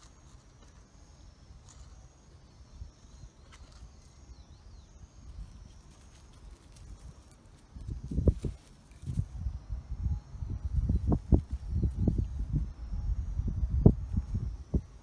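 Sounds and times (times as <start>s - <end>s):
dog walking on dry grass: 5.5s - 9.3s.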